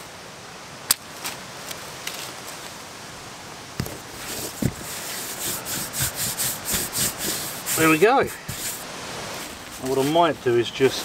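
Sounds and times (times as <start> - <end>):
soft knocks: 3.8 - 4.9
tape pulled from roll: 3.8 - 10.2
hand rubbing tape on cardboard: 3.8 - 10.4.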